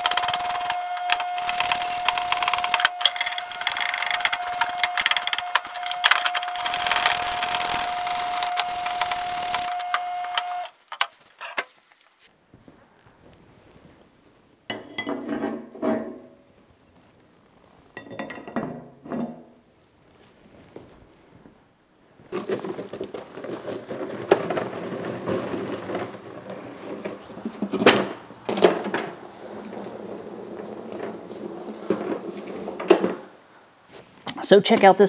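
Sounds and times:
brush scrubbing in solvent: 0:00.0 - 0:10.7
steady machine whine: 0:00.0 - 0:10.7
scraping and knocking caps: 0:00.0 - 0:11.7, 0:22.2 - 0:33.4.

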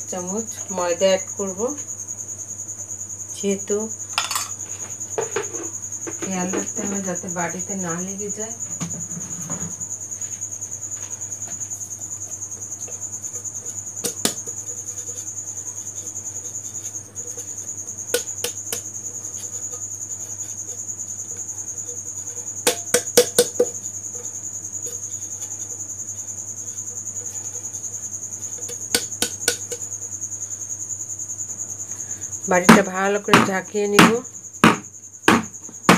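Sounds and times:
hand tapping metal cake tin: 0:28.7 - 0:29.8.

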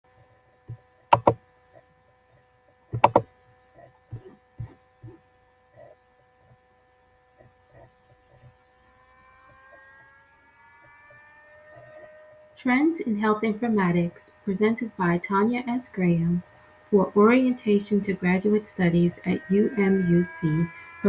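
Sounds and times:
electrical hum: 0:00.1 - 0:21.0
computer mouse double clicks: 0:01.1 - 0:01.4, 0:03.0 - 0:03.3
high whining tones: 0:03.0 - 0:03.3, 0:08.6 - 0:12.6
soft taps and knocks: 0:03.0 - 0:03.3.

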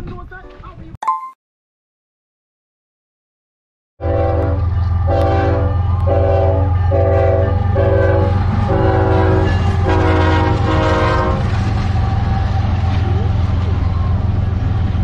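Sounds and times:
locomotive air horn blasts: 0:04.0 - 0:11.5
diesel locomotive engine rumble: 0:04.0 - 0:15.0.

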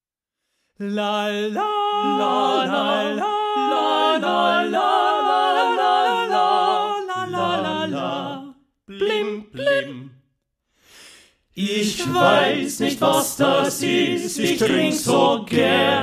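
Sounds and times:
male vocal quartet singing: 0:00.8 - 0:10.2, 0:11.6 - 0:16.0.

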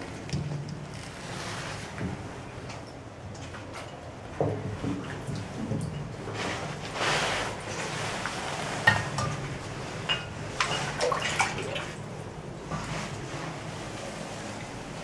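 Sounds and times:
water sloshing from wading: 0:00.0 - 0:15.0
sharp splashes and plops: 0:10.6 - 0:12.0.

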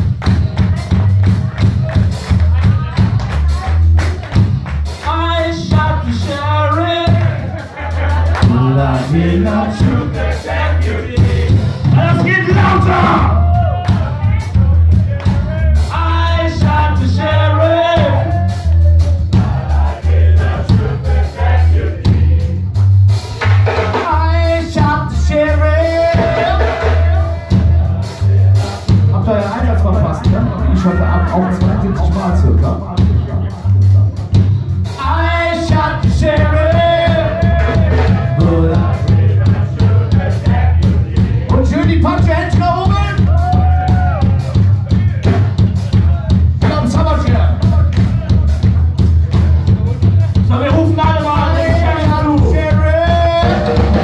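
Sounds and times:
drum hits: 0:00.0 - 0:54.0
live rock band playing: 0:00.0 - 0:54.0
pulsing bass line: 0:00.0 - 0:54.0
person singing: 0:05.0 - 0:19.9, 0:35.0 - 0:54.0.

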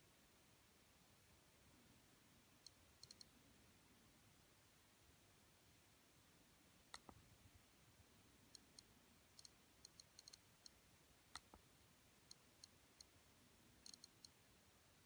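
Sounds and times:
click wheel ticking: 0:02.6 - 0:03.3, 0:08.6 - 0:10.8, 0:13.8 - 0:14.4.

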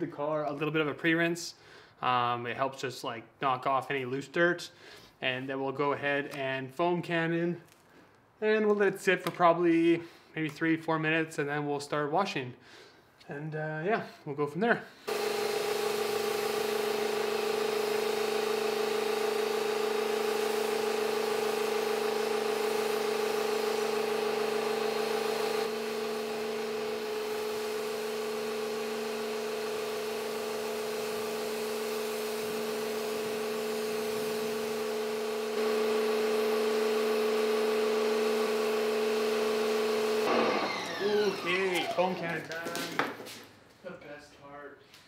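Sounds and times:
water jet spraying car: 0:15.1 - 0:40.2
electric pressure washer humming: 0:15.1 - 0:42.4.

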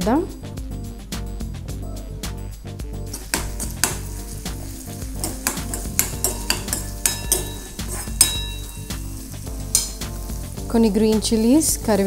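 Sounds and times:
background music: 0:00.0 - 0:12.0
onions sizzling in oil: 0:03.0 - 0:12.0
spoon scraping metal pan: 0:03.1 - 0:10.7.

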